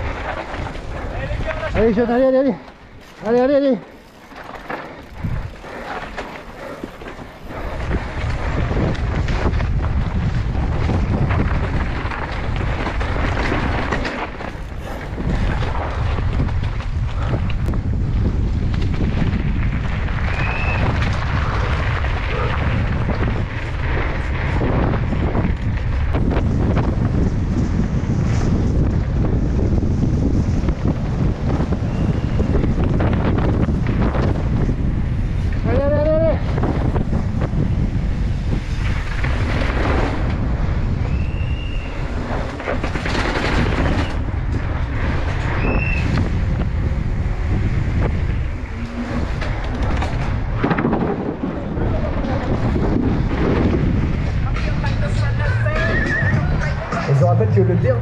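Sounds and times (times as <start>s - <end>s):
bike rattles and knocks: 0.0s - 57.2s
bike tyres on gravel: 0.0s - 58.0s
wind buffeting microphone: 0.0s - 58.0s.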